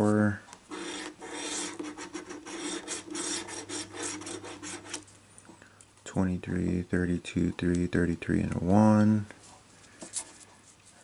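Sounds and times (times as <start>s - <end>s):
lottery ticket being scratched: 0.7s - 5.1s.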